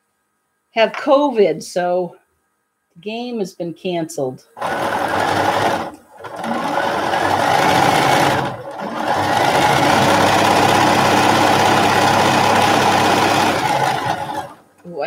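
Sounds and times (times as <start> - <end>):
sewing machine stitching: 4.6 - 14.6.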